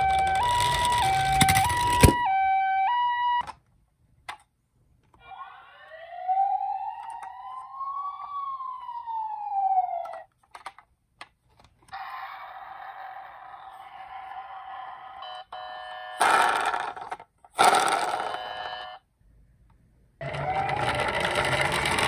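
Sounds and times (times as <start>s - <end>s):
toy wheels rumbling on wood: 0.0s - 2.2s, 16.2s - 18.6s, 20.2s - 22.0s
electronic siren wail: 0.0s - 3.5s, 5.2s - 10.2s, 20.2s - 21.2s
toy two-tone siren: 0.0s - 3.5s, 5.2s - 10.3s, 11.9s - 16.8s, 17.6s - 19.0s, 20.2s - 21.8s
clicks: 6.9s - 7.7s.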